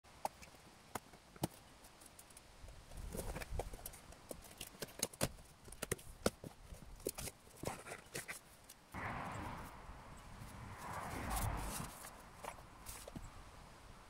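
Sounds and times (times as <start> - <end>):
cardboard rustling: 1.1 - 8.7, 10.9 - 13.3.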